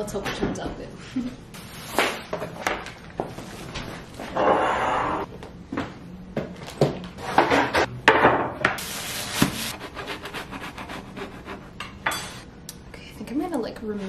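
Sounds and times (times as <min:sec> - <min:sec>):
knife sawing through bread crust: 0:09.7 - 0:11.8.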